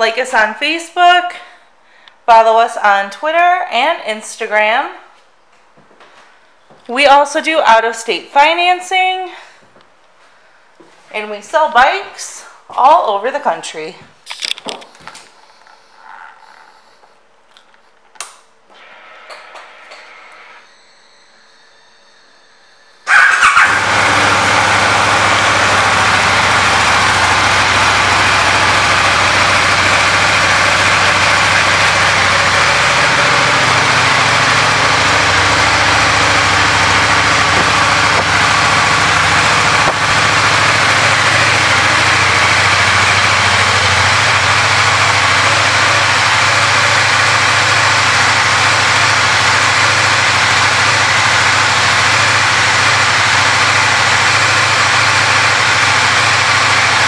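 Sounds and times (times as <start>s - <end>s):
motorcycle engine starting and idling: 23.0s - 57.0s.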